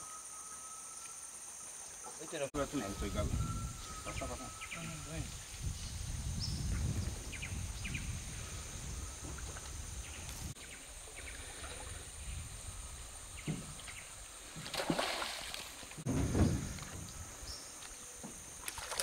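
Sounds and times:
steady high river hiss: 7.3s - 19.0s
splashes: 13.8s - 16.1s, 18.6s - 19.0s.

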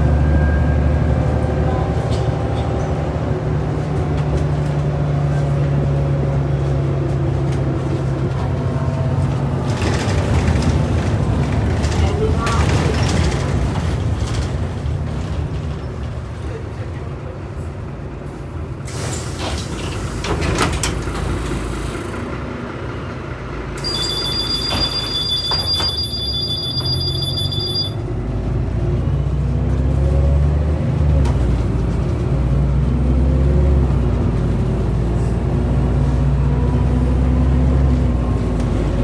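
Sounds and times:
diesel bus engine accelerating: 0.0s - 24.7s, 26.8s - 39.0s
bus doors clunking: 18.8s - 22.2s, 23.8s - 27.8s
two-tone warning beep: 23.8s - 28.0s.

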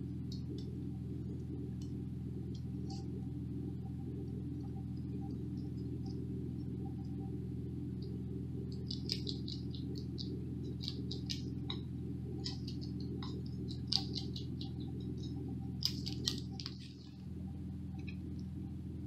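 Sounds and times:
steady low hum: 0.0s - 19.0s
animal chewing clicks and smacks: 8.0s - 17.2s.

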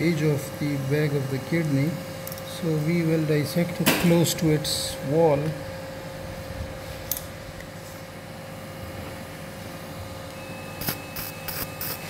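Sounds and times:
equipment hum: 0.0s - 12.0s
high activation tone: 10.2s - 12.0s.

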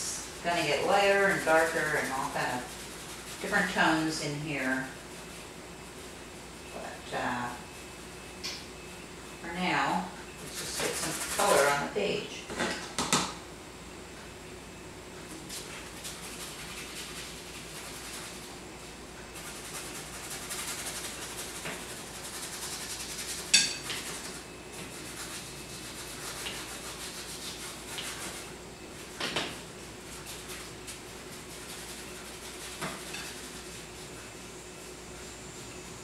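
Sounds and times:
paintbrush scrubbing on canvas: 0.0s - 8.2s, 10.4s - 12.0s, 15.3s - 18.6s, 19.3s - 29.2s, 29.8s - 35.0s.

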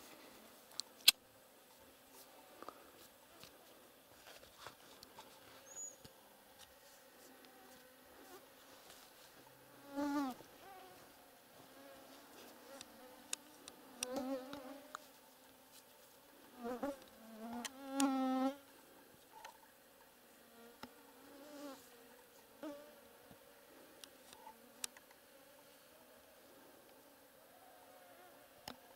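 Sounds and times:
fly buzzing: 9.7s - 15.0s, 16.5s - 18.6s, 20.4s - 23.2s
faint small clicks: 24.0s - 25.2s.

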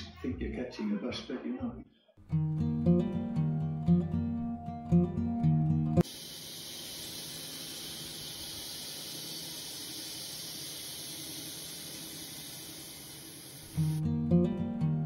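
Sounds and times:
steady high hiss: 6.0s - 14.0s.

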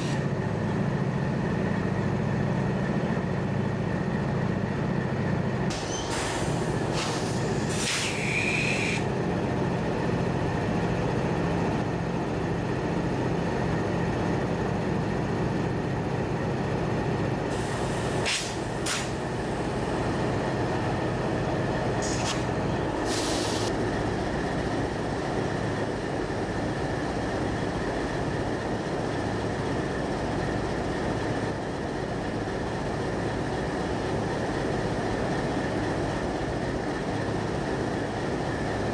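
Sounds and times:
locomotive engine idling rumble: 0.0s - 38.9s
short hisses: 5.7s - 9.0s, 23.0s - 23.7s.

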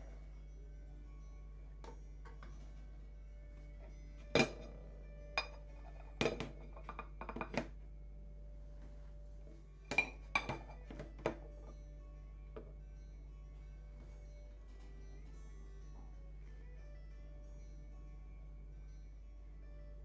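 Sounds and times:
soft background music: 0.0s - 20.0s
ceramic bowl and plates clinking: 4.3s - 7.8s, 9.9s - 11.7s.

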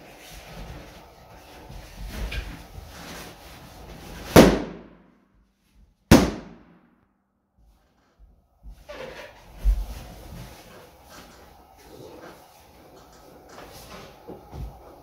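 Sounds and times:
balloons bursting: 4.2s - 5.2s, 6.1s - 7.0s.

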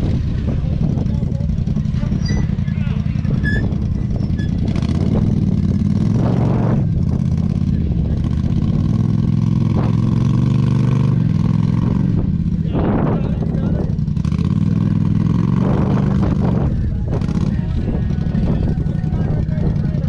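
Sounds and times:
vehicle engine idling: 0.0s - 20.0s.

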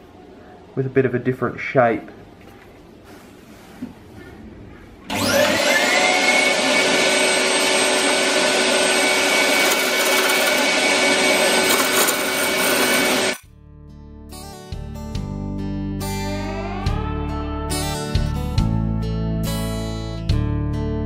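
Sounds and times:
wood lathe motor whine: 5.1s - 13.4s
gouge cutting spinning wood: 6.0s - 13.4s.

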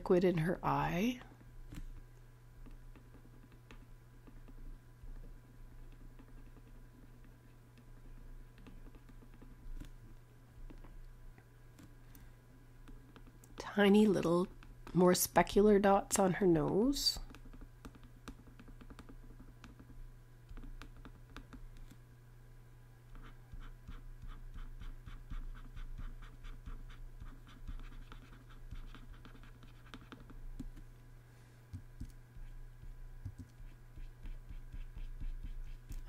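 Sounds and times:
steady low hum: 0.0s - 36.0s
stylus tapping on graphics tablet: 16.5s - 22.0s, 23.2s - 30.9s, 31.7s - 36.0s.

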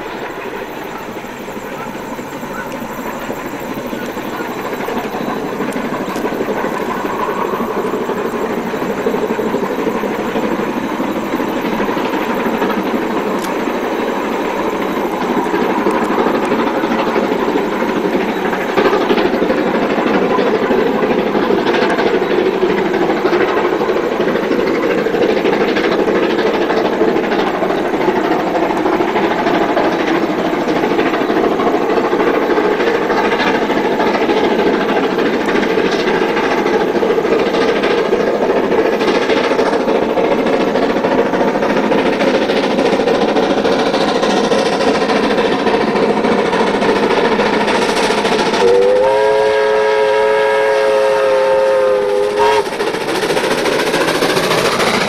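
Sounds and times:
steam locomotive exhaust: 0.0s - 55.0s.

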